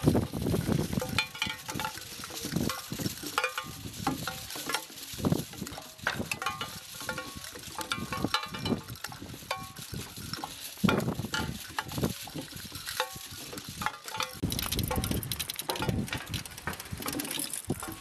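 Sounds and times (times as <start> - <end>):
metal cans rattling: 0.0 - 18.0
metallic clinks: 0.9 - 5.0
wind gusts rumbling: 14.4 - 17.8.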